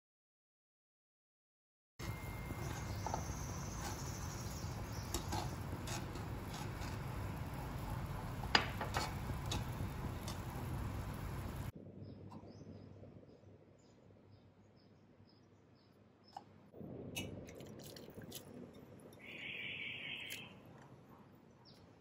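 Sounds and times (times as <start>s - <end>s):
gravy simmering with hiss: 2.6s - 11.7s.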